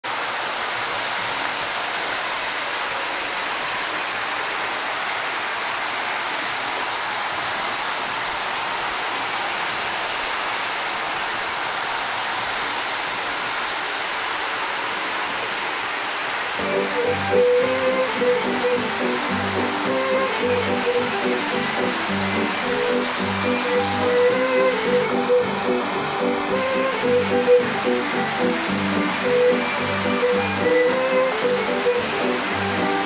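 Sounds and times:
model trains whirring: 14.9s - 33.0s.

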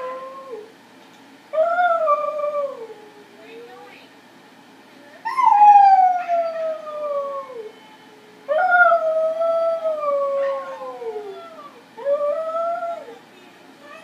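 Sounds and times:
dog howling: 5.3s - 7.8s, 8.5s - 13.2s.

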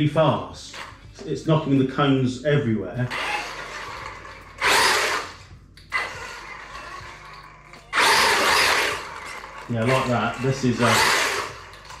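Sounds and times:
electric rc truck driving: 3.0s - 12.0s.

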